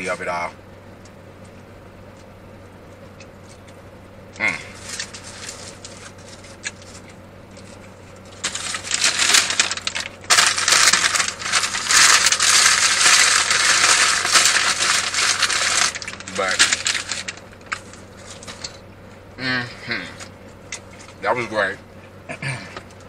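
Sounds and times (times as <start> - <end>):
paper and foil crumpling: 4.5 - 18.8.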